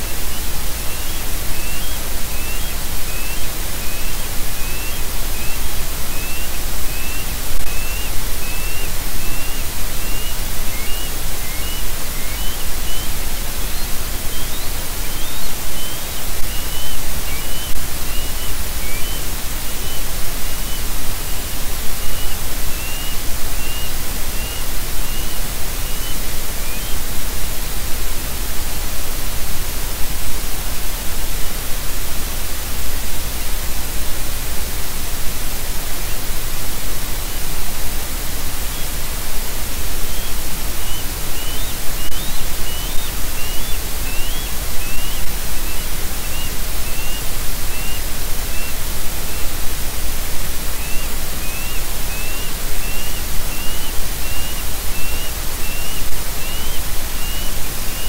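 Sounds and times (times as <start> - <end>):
bird chirping: 0.0 - 27.1, 38.7 - 39.0, 39.9 - 49.6, 50.7 - 58.0
microphone hiss: 0.0 - 58.0.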